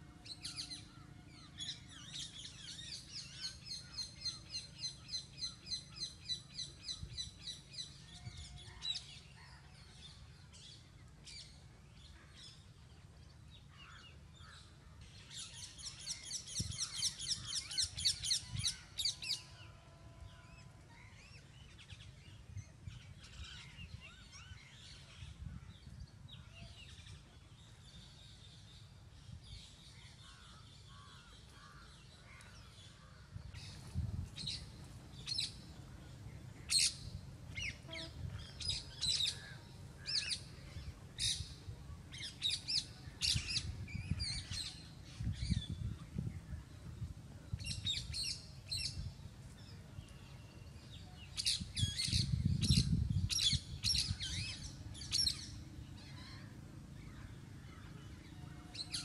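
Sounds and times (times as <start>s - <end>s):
small birds chirping: 29.6s - 59.0s.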